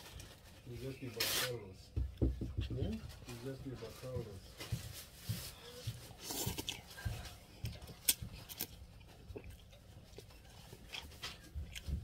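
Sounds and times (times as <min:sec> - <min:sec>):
person chewing noodles: 0:05.6 - 0:12.0.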